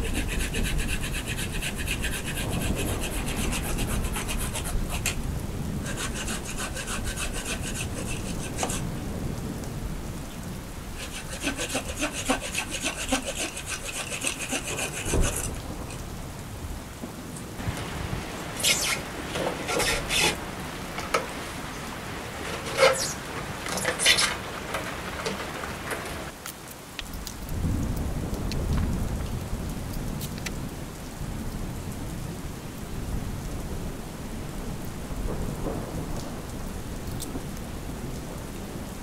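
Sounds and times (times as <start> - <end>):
saw cutting roots and soil: 0.0 - 5.2, 5.8 - 8.9, 11.0 - 15.6, 18.6 - 20.4, 22.4 - 26.4
rain falling: 0.0 - 39.0.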